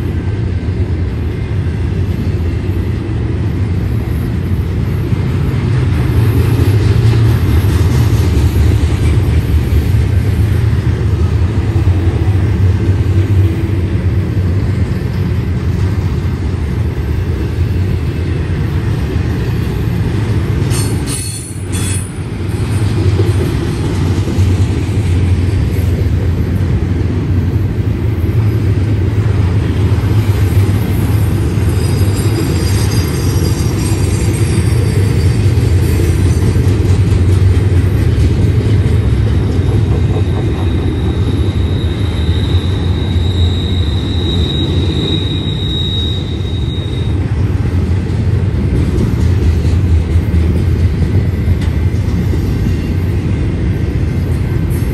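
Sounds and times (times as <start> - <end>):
train wheels rumbling on rail: 0.0 - 54.9
high wheel squeal: 31.1 - 35.9, 39.3 - 47.3.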